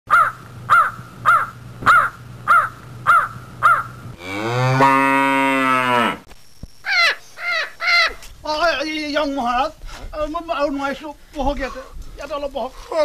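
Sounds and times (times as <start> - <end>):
crow cawing: 0.1 - 4.0, 6.9 - 8.2
cow mooing: 3.7 - 6.3.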